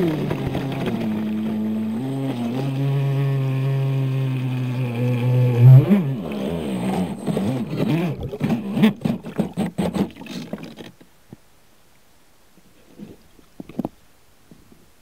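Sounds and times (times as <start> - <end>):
electric motor whining: 0.0 - 9.0
water splashing: 0.0 - 11.0.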